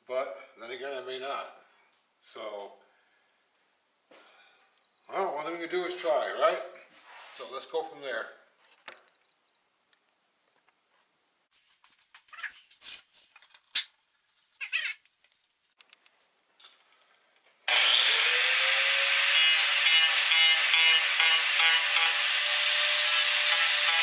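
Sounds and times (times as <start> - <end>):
handling knocks and rustles: 10.5 - 17.6
angle grinder grinding wood: 17.7 - 24.0.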